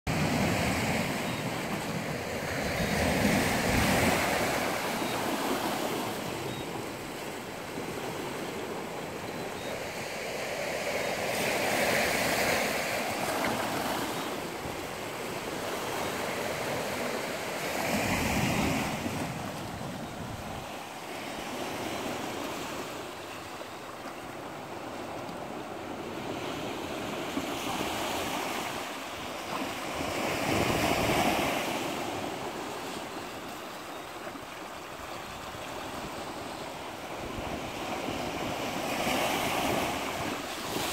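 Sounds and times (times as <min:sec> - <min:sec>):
waves washing over rocks: 0:38.3 - 0:40.9.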